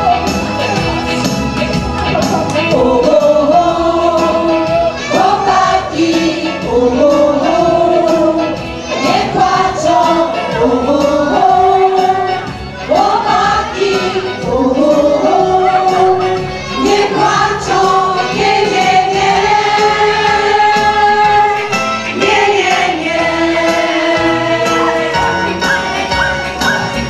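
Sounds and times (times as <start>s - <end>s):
strummed guitars and ukuleles: 0.0s - 3.3s
group singing: 2.0s - 27.0s.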